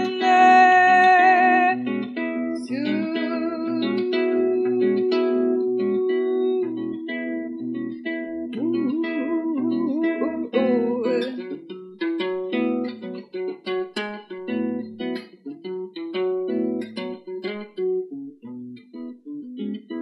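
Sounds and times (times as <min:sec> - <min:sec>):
woman singing with vibrato: 0:00.0 - 0:01.9, 0:02.6 - 0:07.6, 0:08.5 - 0:11.6
clean electric guitar chords: 0:00.0 - 0:11.6.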